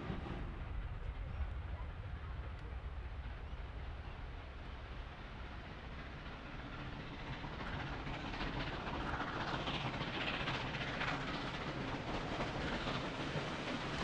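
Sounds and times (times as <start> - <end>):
distant steam locomotive: 0.0 - 14.0.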